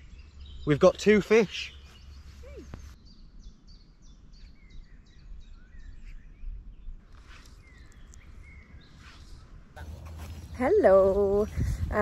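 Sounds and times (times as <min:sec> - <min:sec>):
songbirds singing: 0:00.0 - 0:12.0
steady low rumble: 0:09.5 - 0:12.0.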